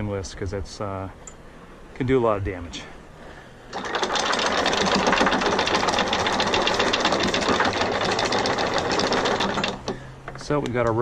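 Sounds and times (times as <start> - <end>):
anchor chain clicking: 3.7 - 10.4
anchor windlass motor hum: 3.7 - 10.5.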